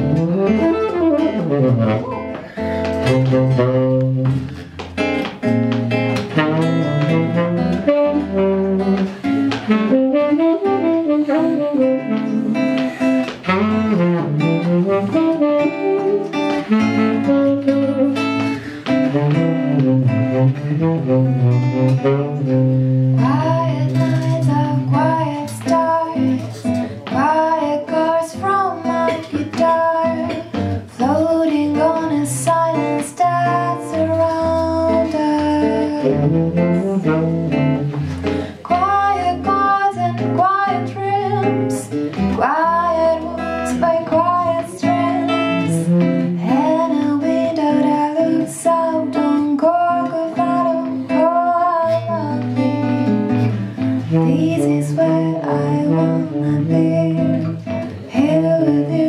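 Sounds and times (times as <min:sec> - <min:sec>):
acoustic guitars strumming: 0:00.0 - 0:59.0
tenor saxophone: 0:00.0 - 0:59.0
woman singing: 0:09.9 - 0:14.1, 0:14.9 - 0:18.6, 0:23.2 - 0:37.2, 0:38.5 - 0:53.0, 0:54.0 - 0:59.0.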